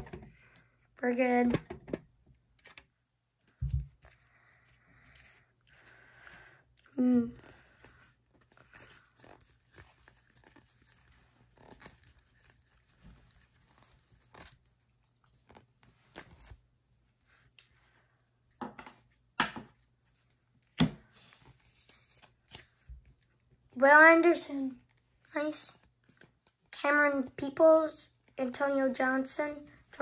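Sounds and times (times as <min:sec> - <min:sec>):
trading cards flipped by hand: 0:21.5 - 0:23.3.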